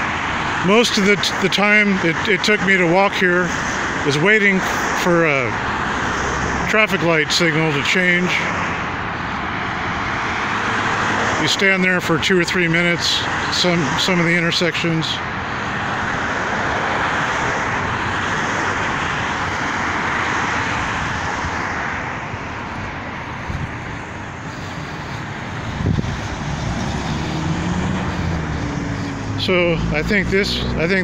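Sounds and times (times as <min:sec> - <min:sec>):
rush of vehicle noise: 0:00.0 - 0:31.0
vehicle engine pulling away: 0:24.5 - 0:31.0.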